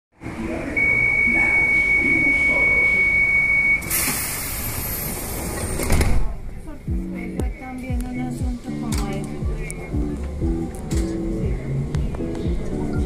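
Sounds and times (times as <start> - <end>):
high warning beep: 0.8 - 4.1
air hiss of doors closing: 3.8 - 6.4.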